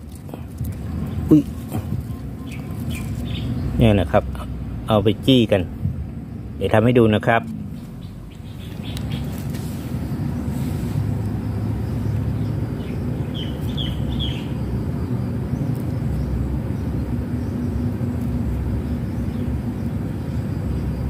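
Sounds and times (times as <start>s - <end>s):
low outdoor rumble: 0.0s - 21.0s.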